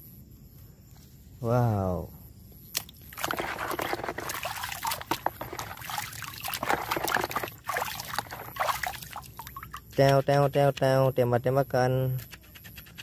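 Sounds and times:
water sloshing in a basin: 0:02.7 - 0:10.2.

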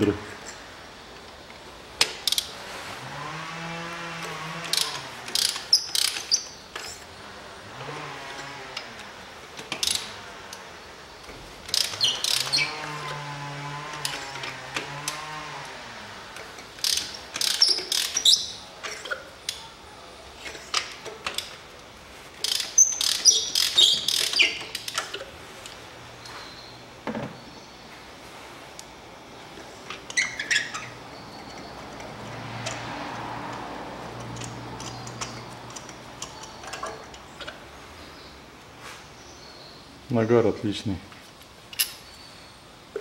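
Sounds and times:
low drawn-out creak: 0:02.3 - 0:07.1, 0:07.7 - 0:10.7, 0:11.7 - 0:19.6, 0:29.6 - 0:37.6
ratchet wrench clicking: 0:04.2 - 0:07.0, 0:09.6 - 0:10.6, 0:11.7 - 0:12.7, 0:16.3 - 0:19.6, 0:22.4 - 0:25.2.

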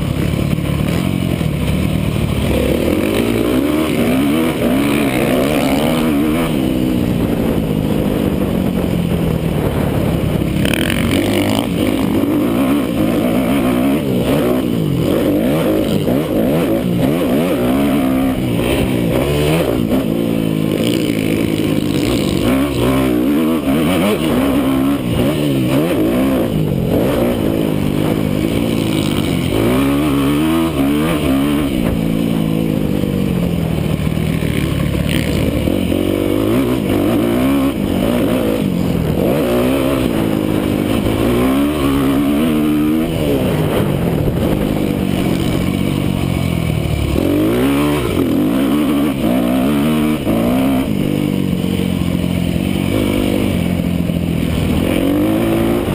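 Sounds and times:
motocross engine revving: 0:00.0 - 0:55.9.

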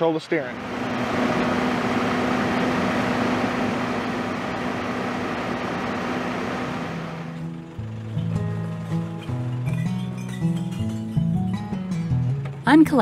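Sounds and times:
machine engine hum: 0:00.4 - 0:09.6
music: 0:07.3 - 0:13.0.

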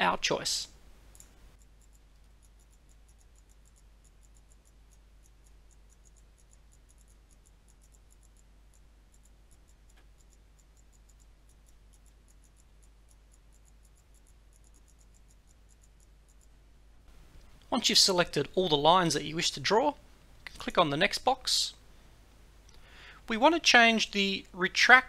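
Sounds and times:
low steady hum: 0:00.0 - 0:25.0
computer mouse clicks: 0:01.1 - 0:16.6.

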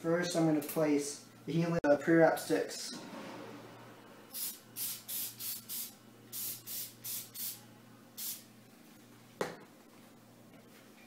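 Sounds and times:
aerosol spray hissing spurts: 0:04.3 - 0:07.6, 0:08.2 - 0:08.4.

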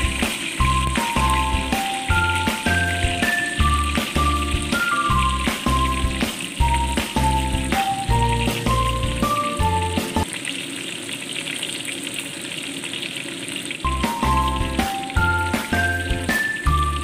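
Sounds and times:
background music: 0:00.0 - 0:10.3, 0:13.9 - 0:17.0
garlic sizzling in oil: 0:00.0 - 0:17.0.

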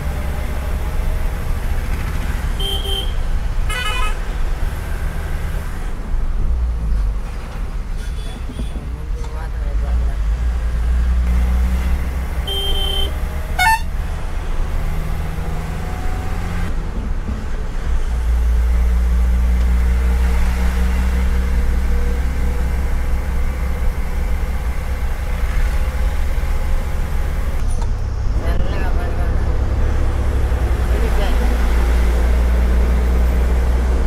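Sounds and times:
truck engine rumble: 0:00.0 - 0:34.0
truck horn toot: 0:02.6 - 0:04.2, 0:12.4 - 0:13.9.

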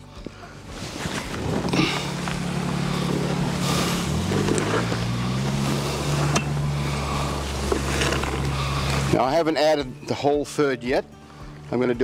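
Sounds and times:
motor engine running: 0:01.4 - 0:09.2.

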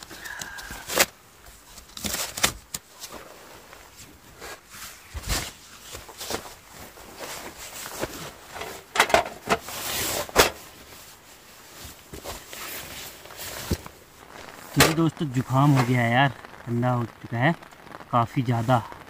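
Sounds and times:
rustling inside nylon tent: 0:00.0 - 0:17.6
foam sleeping mat scraping: 0:03.0 - 0:16.1.

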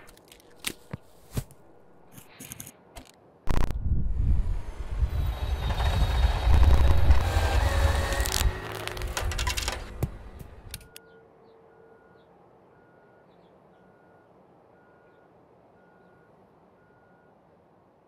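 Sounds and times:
clatter with sharp knocks: 0:05.4 - 0:10.9
faint electronic beeping: 0:10.8 - 0:17.4.

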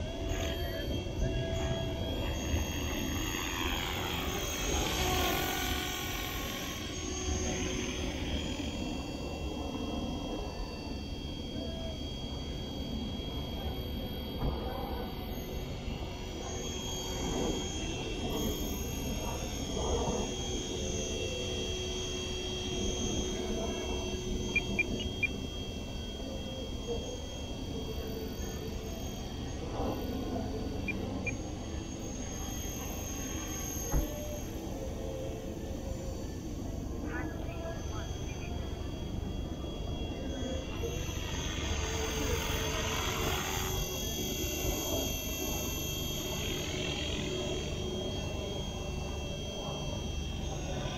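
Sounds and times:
rc helicopter motor whine: 0:00.0 - 0:50.9
short beeps: 0:22.2 - 0:46.7.

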